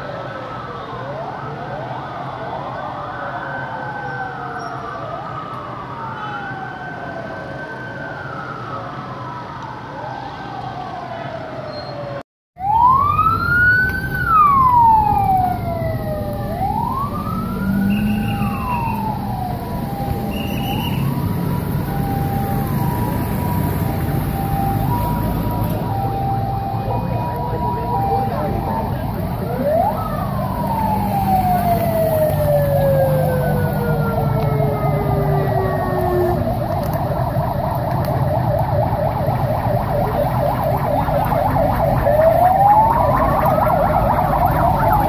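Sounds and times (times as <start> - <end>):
low traffic rumble: 0.0 - 45.0
sirens wailing: 0.0 - 45.0.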